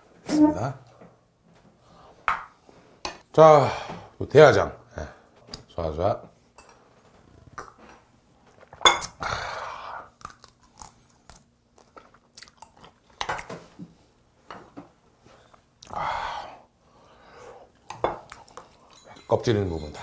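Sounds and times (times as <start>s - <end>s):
person chewing and crunching food: 7.4s - 13.5s, 17.7s - 19.1s.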